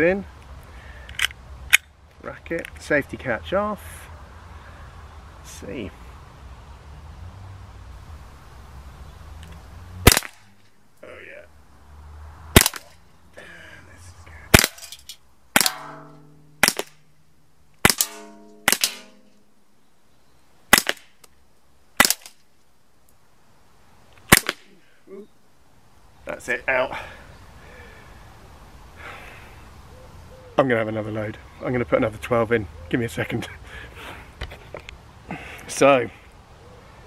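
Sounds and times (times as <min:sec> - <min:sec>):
bb pistol shots: 0:10.0 - 0:10.6, 0:12.5 - 0:13.0, 0:14.5 - 0:17.0, 0:17.8 - 0:19.3, 0:20.7 - 0:21.2, 0:22.0 - 0:22.4, 0:24.3 - 0:24.7
hit can ringing: 0:15.6 - 0:17.0, 0:17.9 - 0:19.5.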